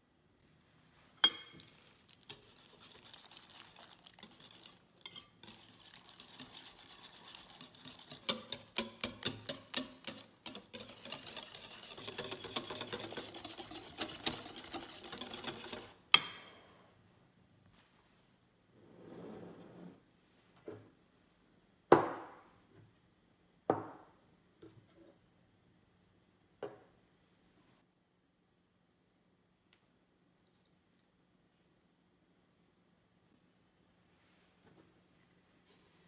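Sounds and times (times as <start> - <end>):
whisk clicking in glass bowl: 4.2 - 16.0.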